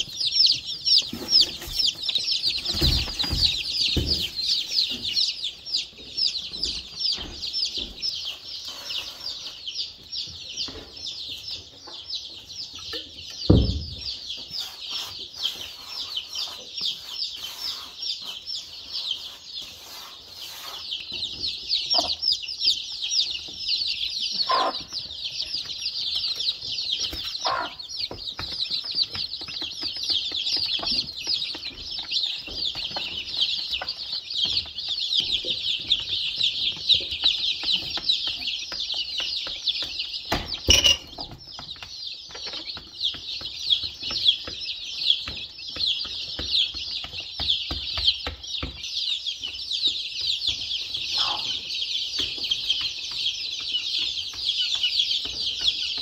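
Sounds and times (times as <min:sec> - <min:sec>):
chicks peeping: 0:00.0 - 0:56.0
hen clucking: 0:14.5 - 0:23.3, 0:24.1 - 0:25.8, 0:26.4 - 0:28.4, 0:50.9 - 0:51.7.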